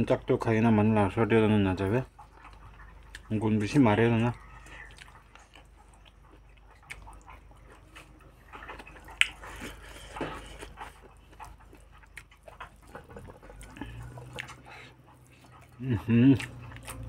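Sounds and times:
fingers squishing food: 0.1 - 17.0.

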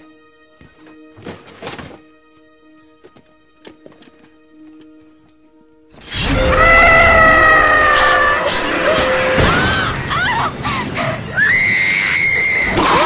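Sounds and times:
loud crash with shattering: 6.1 - 10.5
woman screaming: 6.4 - 10.6.

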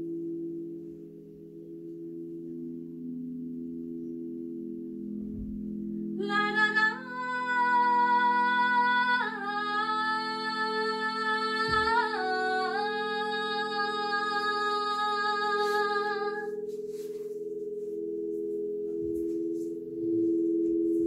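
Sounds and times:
singing bowls ringing: 0.0 - 21.0
woman singing long held notes: 6.2 - 16.7.

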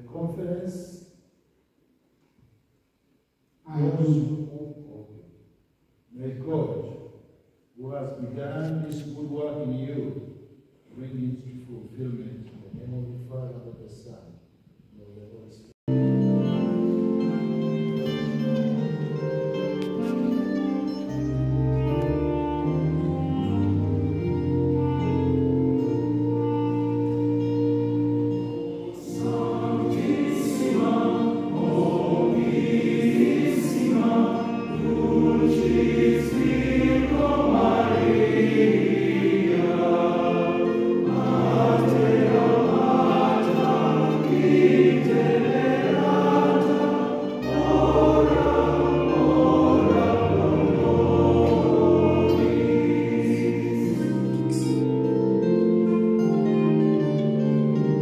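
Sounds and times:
sustained keyboard chords: 15.9 - 58.0
choir singing a hymn: 16.4 - 58.0.

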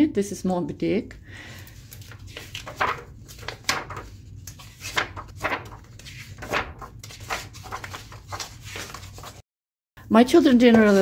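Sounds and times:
book pages turning: 1.7 - 9.4, 10.7 - 11.0.

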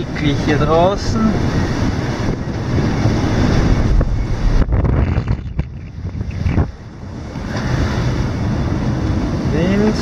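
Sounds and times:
waves rushing: 0.0 - 10.0
wind buffeting microphone: 0.0 - 10.0.

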